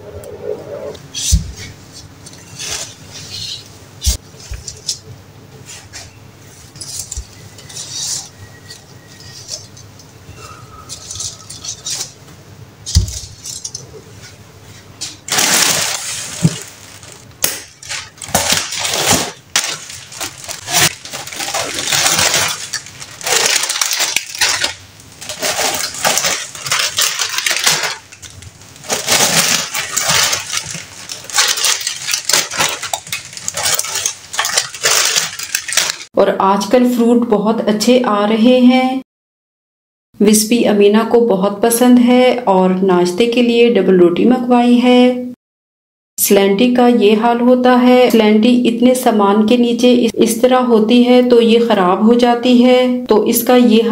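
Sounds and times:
plastic bags rustling and crinkling: 0:01.3 - 0:03.5, 0:05.6 - 0:12.2, 0:12.9 - 0:36.1.

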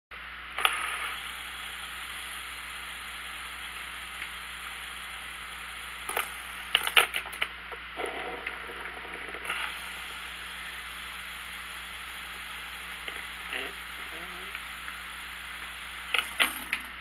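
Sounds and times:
fidget spinner whirring: 0:00.5 - 0:17.0
spinner clicking on floor: 0:06.0 - 0:07.5, 0:11.8 - 0:17.0.

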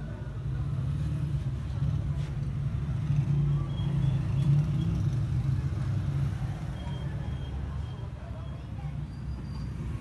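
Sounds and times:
low rumble of traffic: 0:00.0 - 0:10.0.

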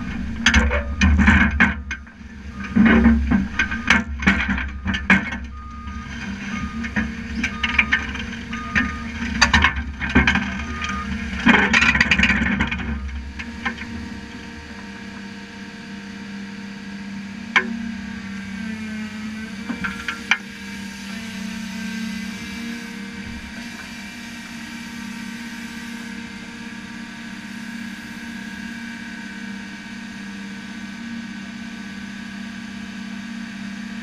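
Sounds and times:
steel tracks clanking and grinding: 0:00.0 - 0:15.2, 0:17.6 - 0:23.9
excavator diesel engine running: 0:00.0 - 0:34.0
beeping travel alarm: 0:00.6 - 0:11.8, 0:12.8 - 0:13.8.

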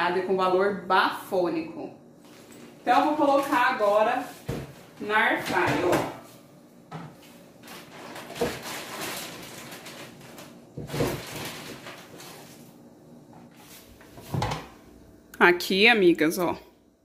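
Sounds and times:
scraping and rustling: 0:07.6 - 0:12.7.

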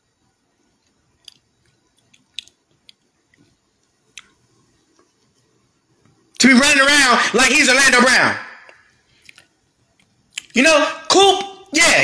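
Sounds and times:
faint short clicks and smacks: 0:00.8 - 0:04.4, 0:08.7 - 0:10.6.

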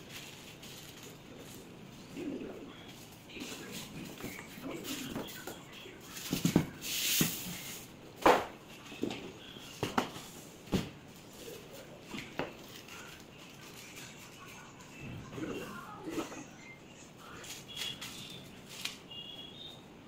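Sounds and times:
plastic wrapping rustling: 0:00.0 - 0:02.1.

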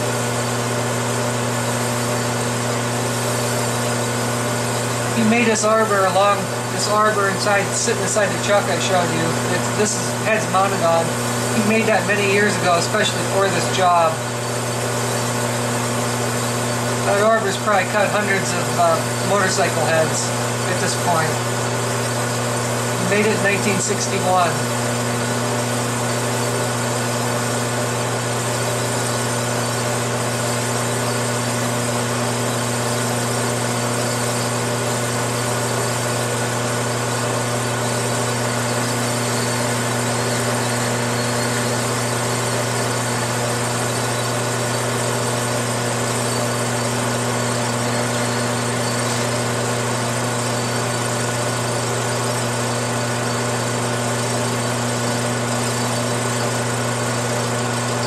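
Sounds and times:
metal lathe humming: 0:00.0 - 0:58.0.

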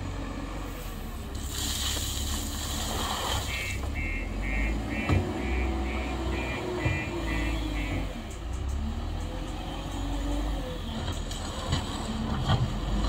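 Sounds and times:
soil pouring: 0:01.3 - 0:03.5
reversing alarm beeping: 0:03.5 - 0:08.3
diesel engine running: 0:03.5 - 0:13.0.

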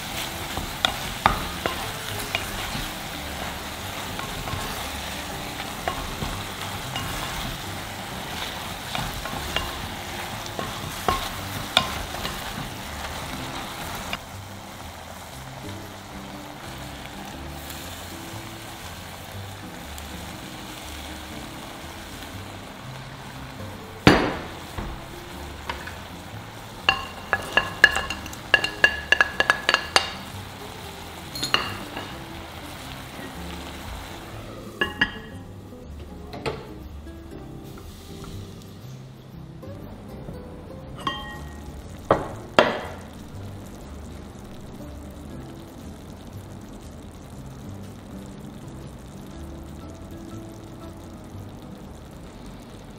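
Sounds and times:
meat sizzling in pot: 0:00.0 - 0:52.9
spatula scraping and knocking pot: 0:08.3 - 0:14.0, 0:26.8 - 0:30.2
louder knock: 0:24.1 - 0:25.0
clinks on a ceramic plate: 0:31.4 - 0:32.1, 0:41.0 - 0:41.5.

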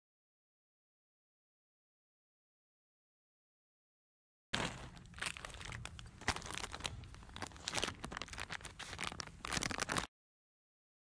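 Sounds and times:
plastic bag crinkling: 0:04.6 - 0:10.1.

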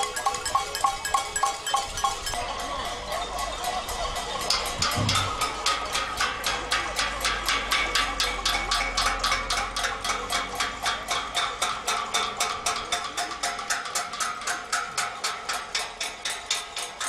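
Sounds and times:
metal pan clanging: 0:00.0 - 0:11.1.

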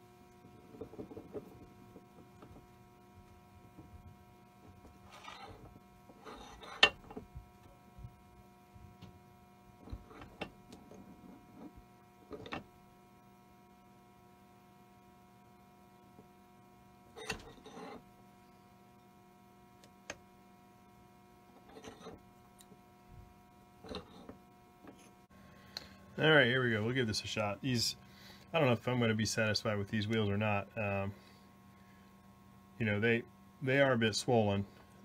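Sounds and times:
steady electrical hum: 0:00.0 - 0:35.0
metallic clicks and scrapes: 0:05.0 - 0:07.2, 0:23.8 - 0:24.3.

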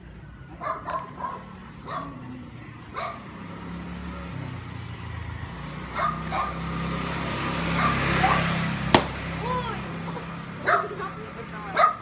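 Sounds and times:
dog barking: 0:00.6 - 0:02.2, 0:02.9 - 0:03.3, 0:05.9 - 0:06.6, 0:07.8 - 0:08.5, 0:10.6 - 0:11.0, 0:11.7 - 0:12.0.

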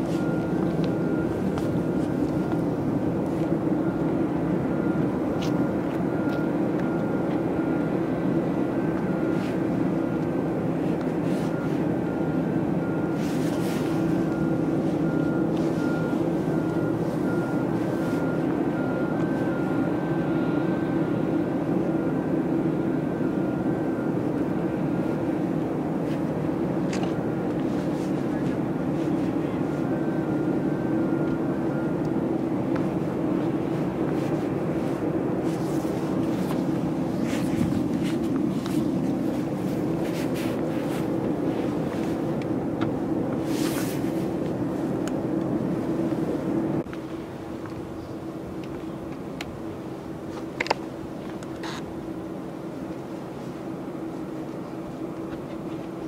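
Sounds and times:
airliner and ground equipment drone: 0:00.0 - 0:56.0
two-tone electronic beeping: 0:11.5 - 0:21.2.

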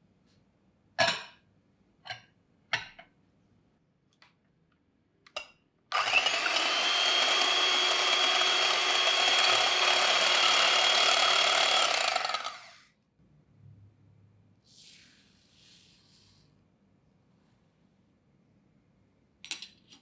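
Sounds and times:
electric hand mixer whining: 0:05.9 - 0:12.8.

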